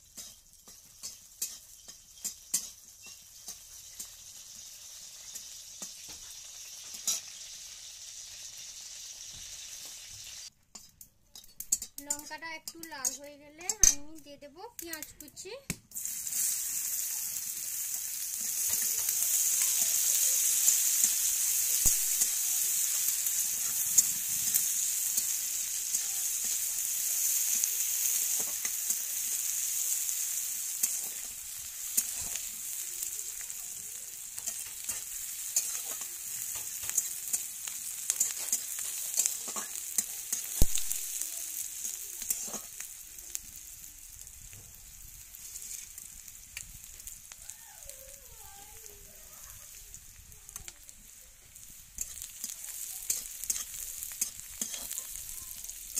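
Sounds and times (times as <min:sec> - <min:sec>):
onions sizzling in hot oil: 0:00.0 - 0:55.9
metal spatula scraping pan: 0:41.9 - 0:42.8, 0:52.0 - 0:55.6.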